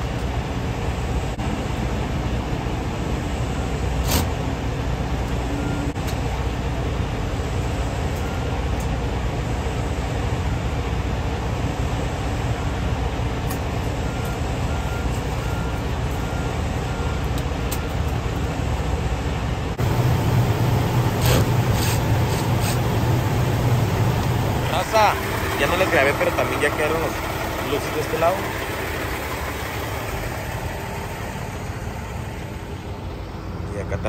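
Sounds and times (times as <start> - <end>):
diesel truck engine idling: 4.5 - 34.0.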